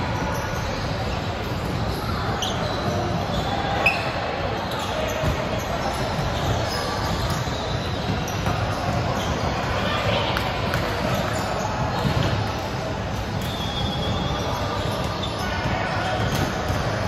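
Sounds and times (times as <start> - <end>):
sneaker squeaks on hardwood: 0.0 - 10.1, 13.3 - 16.9
players' voices: 0.0 - 17.0.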